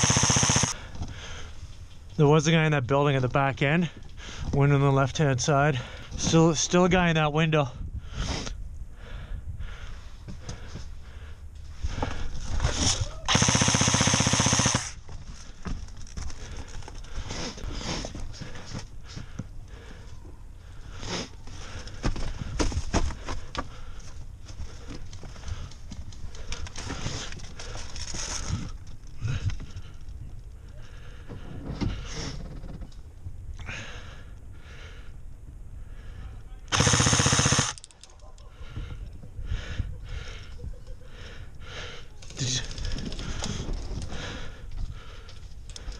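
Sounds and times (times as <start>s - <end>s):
airsoft rifle full-auto burst: 0.0s - 0.8s, 13.3s - 15.0s, 36.7s - 37.8s.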